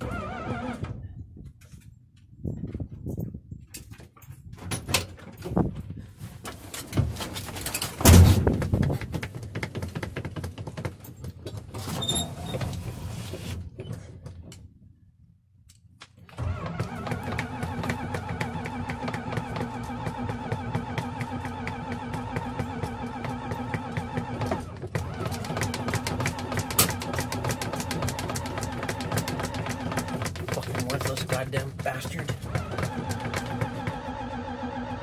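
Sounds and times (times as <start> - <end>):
engine stumbling with knocks and pops: 2.5 - 12.6, 16.0 - 34.5
engine steady drone: 16.4 - 35.0.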